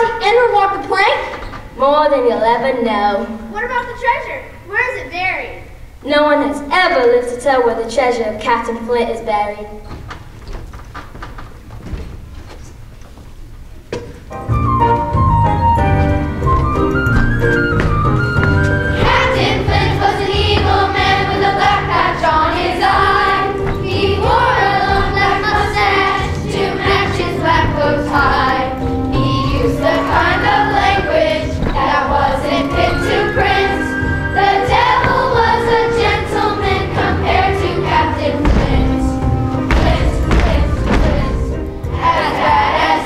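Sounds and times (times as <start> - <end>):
instrumental accompaniment with bass: 14.2 - 43.0
children's choir singing: 18.8 - 43.0.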